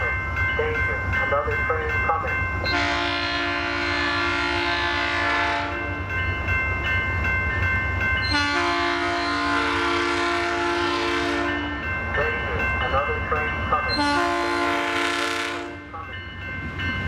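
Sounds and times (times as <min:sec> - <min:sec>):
train air horn blasts: 0:02.7 - 0:05.8, 0:08.3 - 0:11.6, 0:13.9 - 0:15.9.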